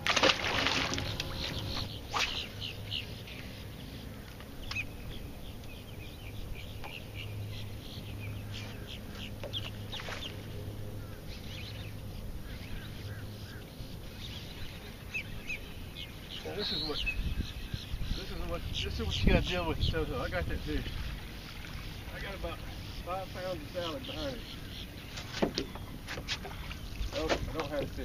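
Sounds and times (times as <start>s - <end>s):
low hum: 0.0s - 16.4s
water birds clucking: 0.0s - 28.0s.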